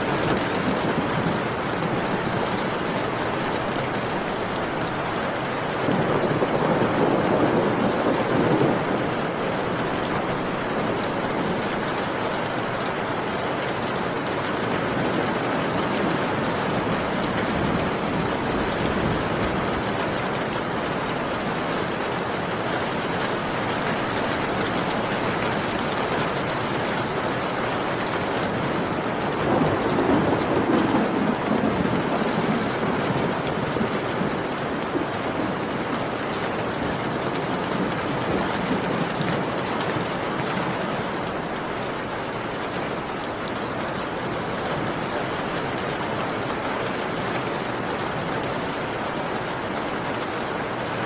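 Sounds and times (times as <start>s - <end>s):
steady rain falling: 0.0s - 51.0s
low rumble of thunder: 5.8s - 12.2s, 15.4s - 21.4s, 28.0s - 35.9s.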